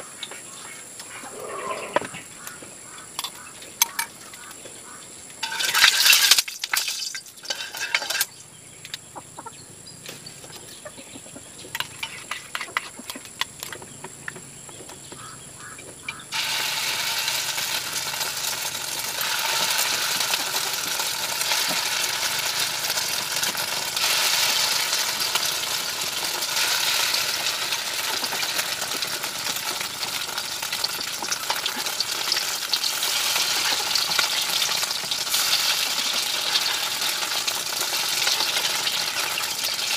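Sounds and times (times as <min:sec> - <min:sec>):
utensil clatter: 0:05.4 - 0:08.3
food frying in hot oil: 0:05.4 - 0:08.4, 0:16.3 - 0:39.9.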